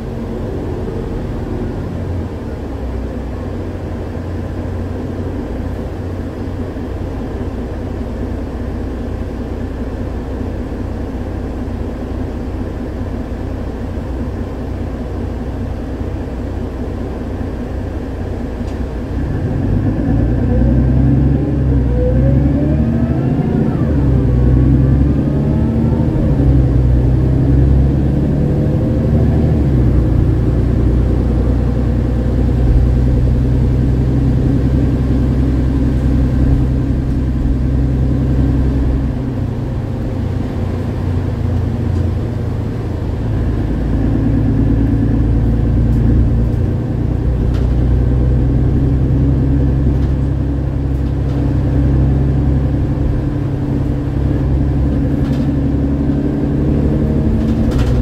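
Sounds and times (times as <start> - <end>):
bus engine drone from inside: 0.0 - 58.0.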